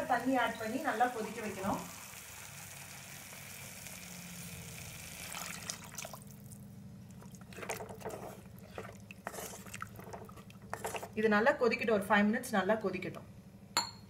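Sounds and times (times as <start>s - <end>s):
water pouring into a pot: 1.2s - 6.6s
spatula stirring and scraping pot: 7.3s - 11.2s.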